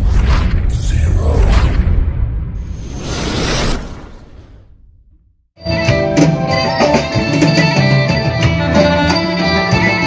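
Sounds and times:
whooshing sweeps: 0.0s - 5.3s.

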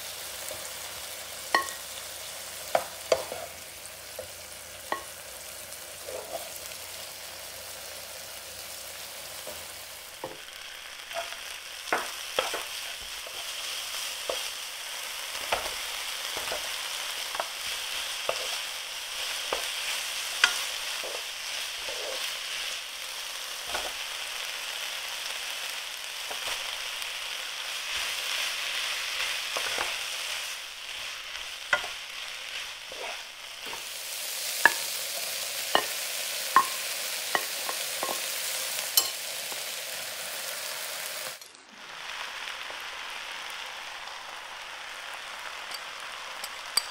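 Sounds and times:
vegetables sizzling in oil: 0.0s - 46.9s
wooden spatula scraping pan: 6.0s - 6.6s, 15.3s - 22.7s, 27.9s - 33.9s.

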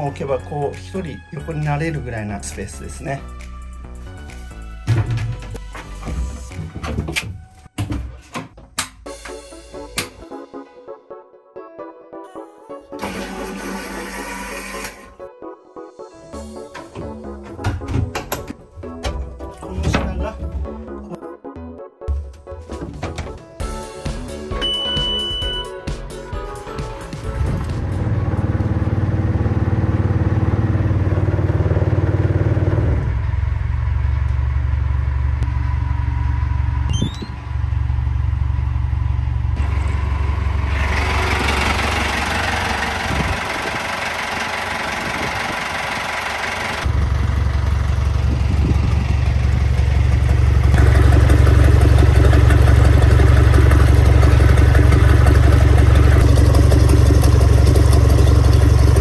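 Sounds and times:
diesel engine idling: 27.8s - 59.0s.

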